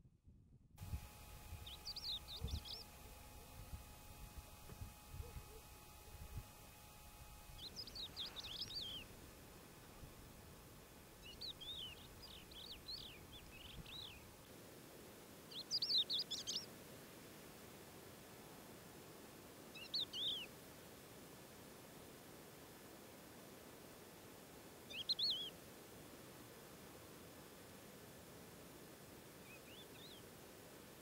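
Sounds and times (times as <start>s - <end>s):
songbird singing: 0.8s - 14.5s, 15.5s - 16.7s, 19.7s - 20.5s, 24.9s - 25.6s, 29.4s - 30.4s.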